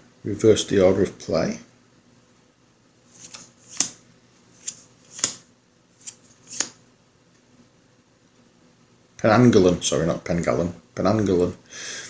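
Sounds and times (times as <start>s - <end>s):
playing cards snapping and swishing: 3.1s - 4.0s, 4.6s - 6.8s.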